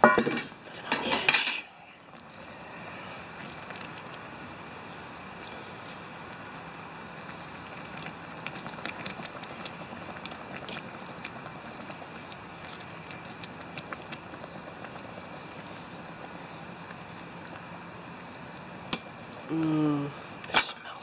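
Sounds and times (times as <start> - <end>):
gas stove hissing: 0.0 - 20.8.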